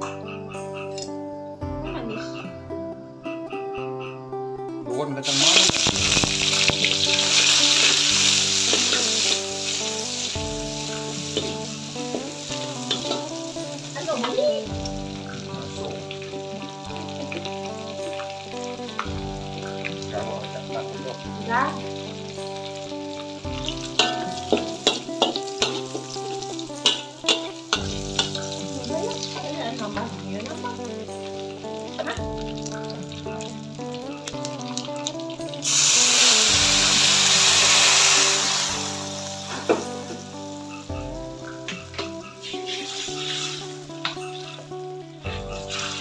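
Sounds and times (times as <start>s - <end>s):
food sizzling in hot oil: 5.2s - 46.0s
metal spatula clicking on wok: 24.0s - 28.5s.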